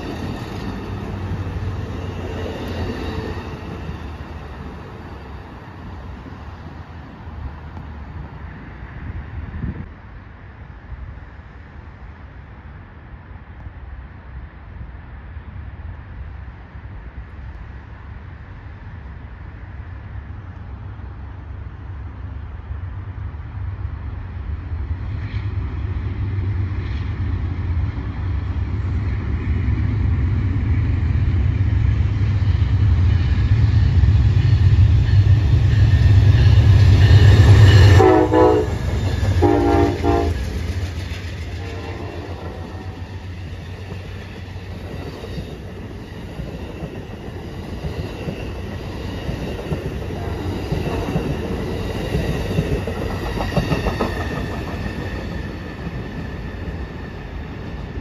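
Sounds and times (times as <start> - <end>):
diesel locomotive rumble: 0.0 - 13.0, 15.5 - 58.0
train wheels clickety-clack: 25.0 - 58.0
train horn blasts: 37.2 - 40.4, 41.5 - 43.2.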